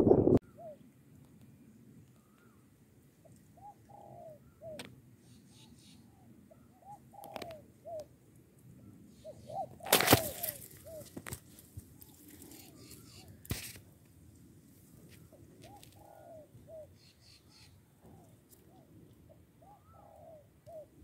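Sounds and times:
dove cooing: 0.0s - 0.8s, 3.2s - 4.9s, 5.5s - 8.1s, 9.1s - 11.4s, 12.0s - 13.4s, 15.3s - 21.0s.

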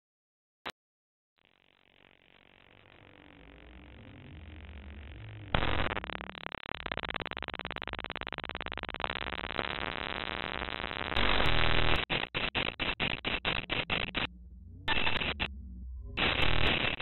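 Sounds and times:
harsh stuttering buzz: 1.4s - 17.0s
burst of static: 2.1s - 17.0s
faint low hum: 2.7s - 6.5s, 12.6s - 17.0s.

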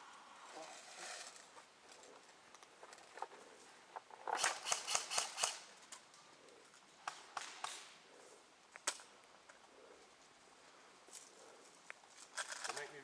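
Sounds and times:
airsoft guns firing: 4.4s - 5.6s.

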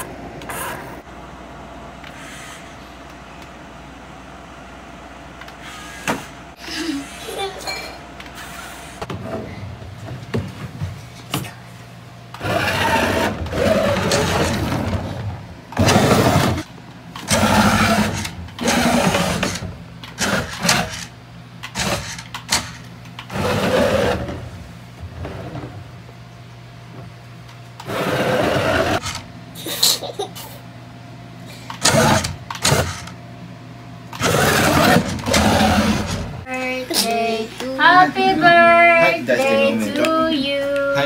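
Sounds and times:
steady low hum: 0.0s - 41.0s
toy car electric motor whirring: 12.4s - 14.8s, 15.8s - 24.2s, 27.8s - 29.2s, 34.1s - 36.3s.

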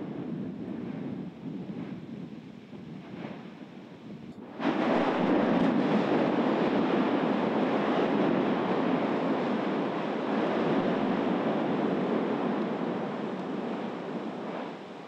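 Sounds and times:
volcano gas and lava rushing: 0.0s - 15.0s.

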